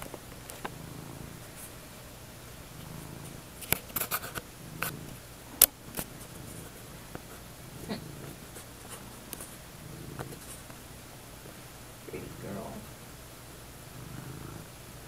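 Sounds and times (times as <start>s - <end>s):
cat purring: 0.0s - 15.0s
sharp clicks and rustles: 2.8s - 7.5s.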